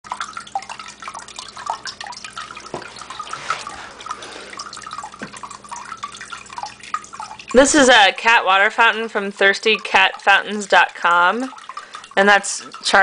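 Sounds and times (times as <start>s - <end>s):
faint pump hum: 0.0s - 13.0s
water trickling and dripping: 0.0s - 13.0s.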